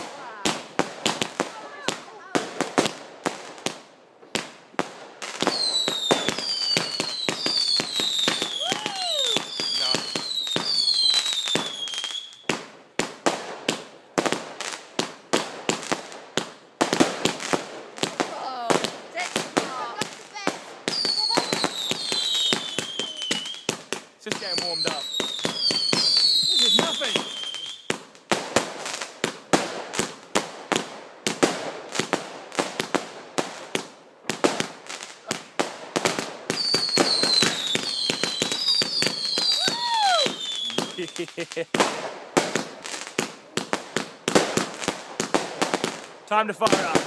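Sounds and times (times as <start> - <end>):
sharp firework bangs: 4.4 - 47.0
whistling firework shot: 5.5 - 12.6, 20.9 - 23.7, 24.4 - 27.9, 36.5 - 41.2.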